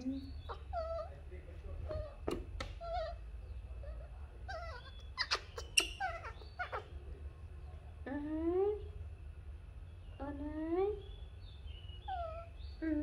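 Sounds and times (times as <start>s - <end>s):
baby monkey squeaking: 0.0s - 1.1s, 1.9s - 3.2s, 4.5s - 6.9s.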